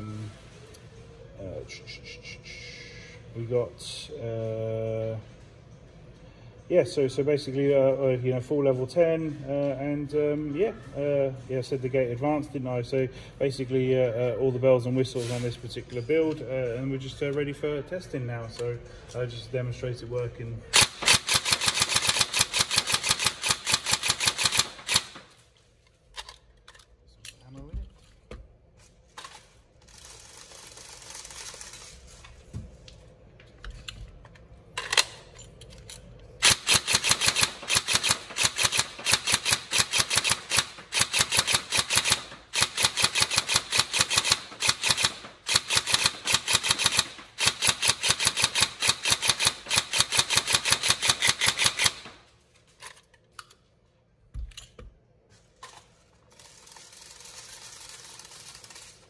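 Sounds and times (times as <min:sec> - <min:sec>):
airsoft gun firing full auto: 0:20.8 - 0:25.3, 0:36.4 - 0:52.2.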